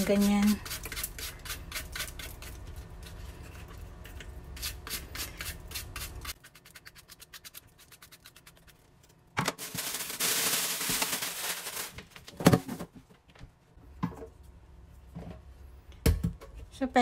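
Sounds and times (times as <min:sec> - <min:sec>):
loud rustling noise: 0:09.5 - 0:12.9.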